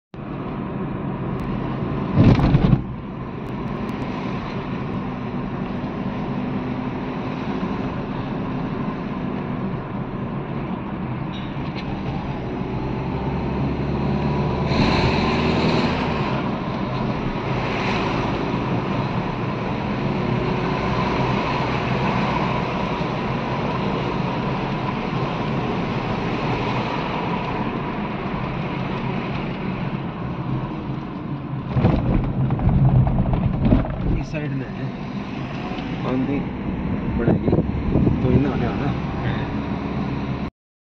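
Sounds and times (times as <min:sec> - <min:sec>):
car engine and road noise: 0:00.1 - 0:40.5
loud thump: 0:02.1 - 0:03.0, 0:31.7 - 0:34.3.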